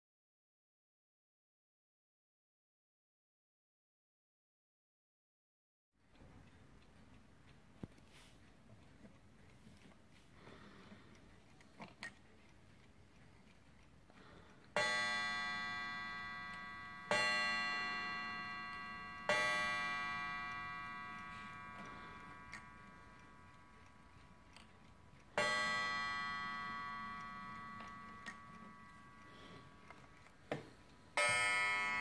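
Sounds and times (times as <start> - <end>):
faint clicks of clock hand: 6.0 - 32.0
clock striking on coil gong: 14.8 - 23.4, 25.4 - 29.3, 31.2 - 32.0.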